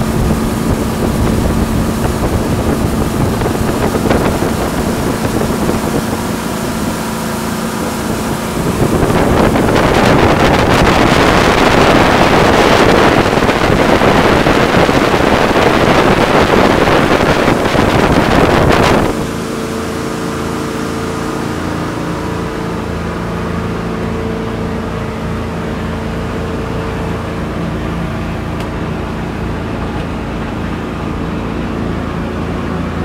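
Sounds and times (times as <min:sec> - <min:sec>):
wind rushing over microphone: 0:00.0 - 0:23.6
boat engine droning: 0:00.0 - 0:33.0
hull and water noise: 0:00.0 - 0:33.0.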